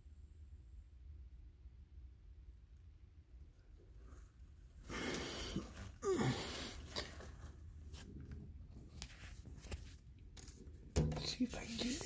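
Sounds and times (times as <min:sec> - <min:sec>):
breath out: 0:04.8 - 0:07.2.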